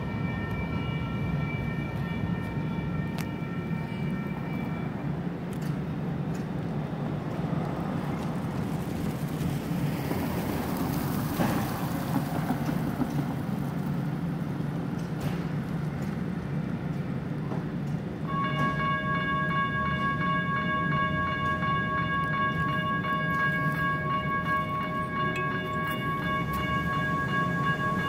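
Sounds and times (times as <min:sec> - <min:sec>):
electronic crossing bell ringing: 0:00.0 - 0:05.2, 0:18.3 - 0:28.0
street traffic: 0:00.0 - 0:28.0.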